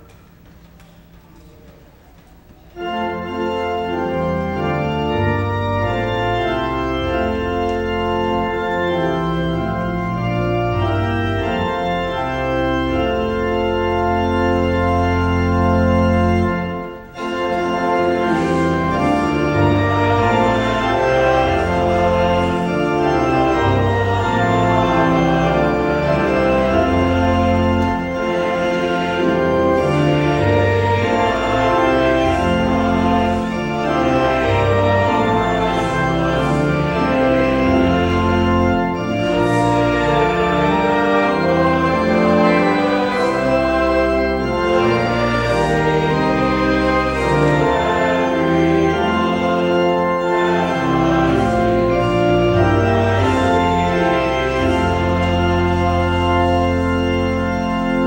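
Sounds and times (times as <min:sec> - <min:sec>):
church organ playing chords: 0:00.0 - 0:58.0.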